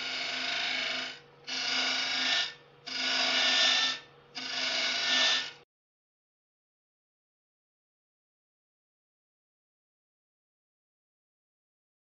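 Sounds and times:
lathe humming: 0.0 - 5.5
tool cutting wood on lathe: 0.0 - 5.6.

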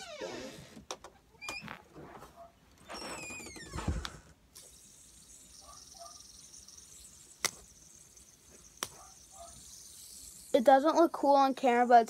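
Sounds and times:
fidget spinner hiss: 4.6 - 12.0.

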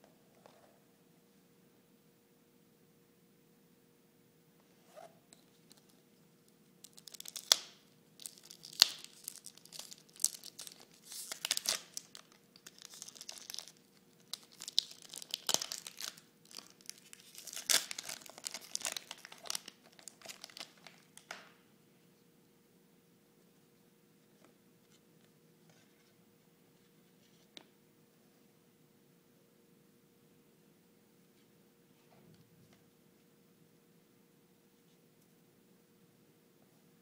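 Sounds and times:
wrapper tearing and crinkling: 6.8 - 21.5.

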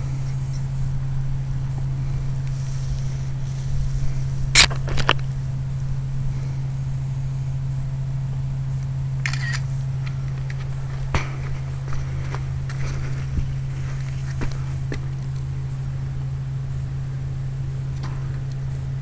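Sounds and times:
steady low hum: 0.0 - 19.0
smartphone camera shutter clicks: 4.6 - 5.1, 9.2 - 9.7.

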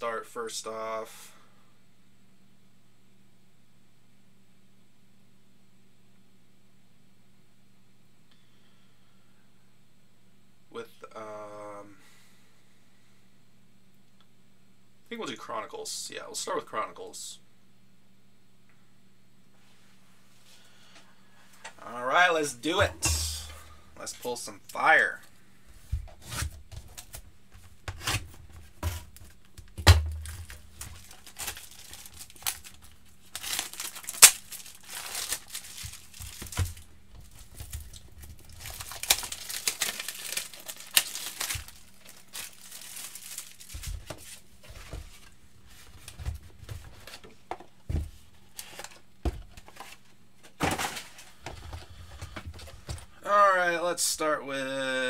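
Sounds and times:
plastic wrap tearing and crinkling: 27.9 - 44.6.

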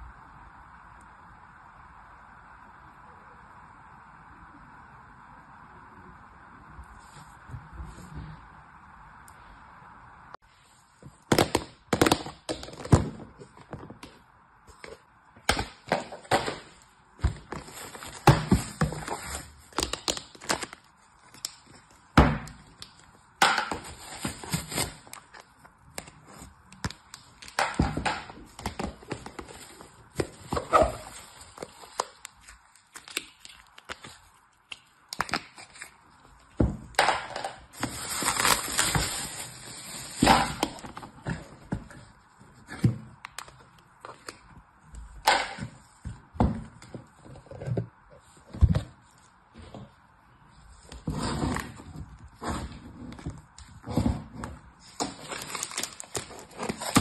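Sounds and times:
plastic bags crinkling: 17.4 - 22.0, 22.7 - 34.4, 37.0 - 41.1, 54.8 - 57.0.

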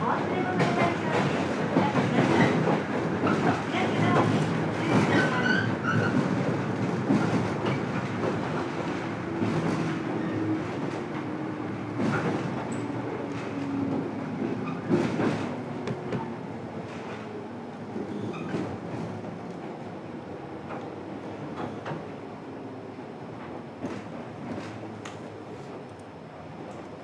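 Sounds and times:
train running rumble: 0.0 - 22.1.

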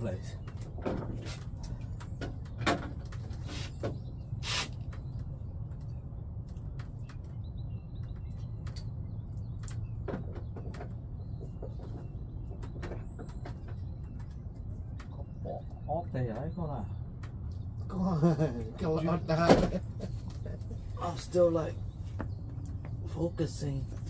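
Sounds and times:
steady low rumble: 0.0 - 24.0
faint bird chirps: 7.1 - 17.0.

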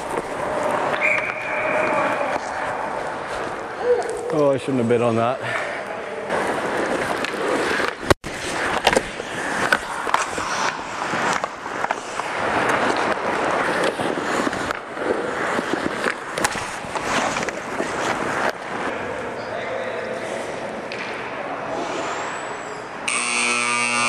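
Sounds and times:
hockey sticks and pucks clacking: 0.0 - 5.2, 5.8 - 19.5, 20.1 - 21.4
skates scraping on ice: 0.0 - 19.0.

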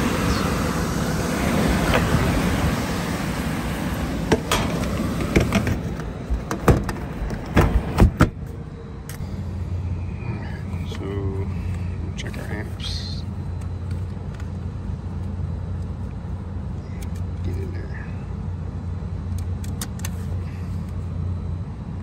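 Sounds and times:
blower rushing air: 0.0 - 17.4.

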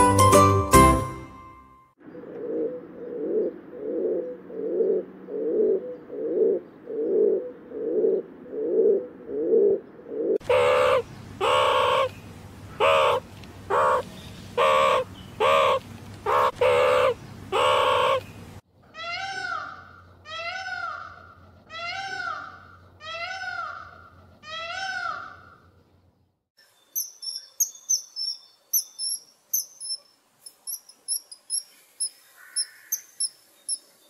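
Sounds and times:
pigeon cooing: 2.2 - 12.1, 12.8 - 18.3
harsh animal calls: 2.2 - 18.3
peacock mewing call: 2.4 - 18.3, 18.9 - 25.6, 32.4 - 33.1.

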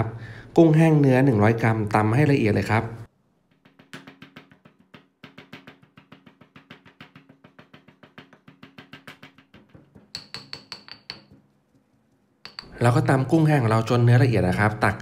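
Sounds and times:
stone pestle pounding in mortar: 3.5 - 11.5, 12.4 - 12.8.

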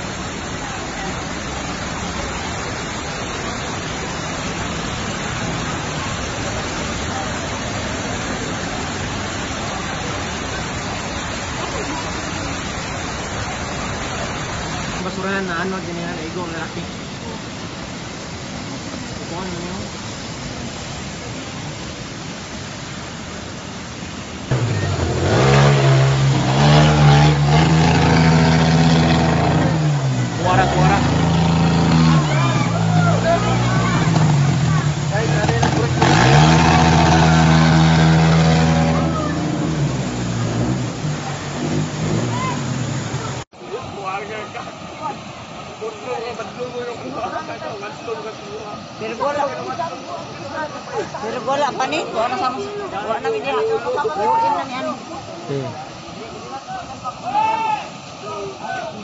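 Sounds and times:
floodwater rushing: 0.0 - 59.0
heavy rain: 0.0 - 59.0
motorcycle engine revving: 24.5 - 43.4.

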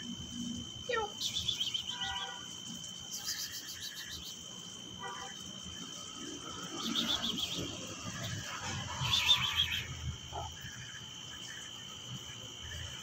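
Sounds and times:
chirping trills: 1.0 - 2.4, 6.8 - 9.9
high-pitched whine: 5.2 - 10.8.

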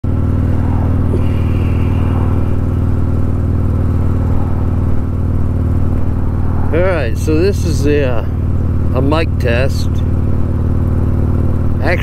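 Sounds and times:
motorcycle engine rumbling: 0.0 - 12.0.

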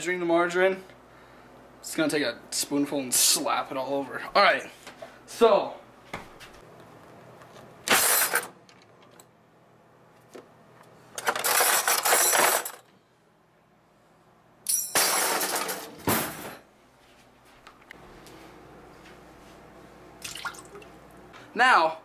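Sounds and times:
cutlery clattering in drawer: 7.9 - 8.6, 11.2 - 12.9, 14.7 - 16.6.

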